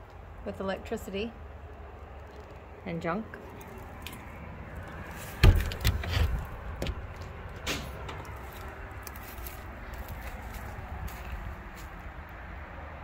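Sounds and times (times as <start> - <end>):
door shutting with heavy thud: 5.4 - 8.2
rattling knocks: 5.4 - 8.3.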